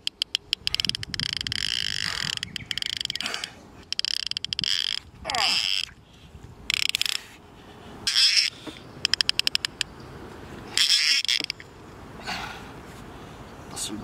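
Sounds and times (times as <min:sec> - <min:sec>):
fishing reel drag buzzing: 0:00.1 - 0:03.2, 0:03.9 - 0:06.0, 0:06.7 - 0:07.3, 0:10.8 - 0:11.6.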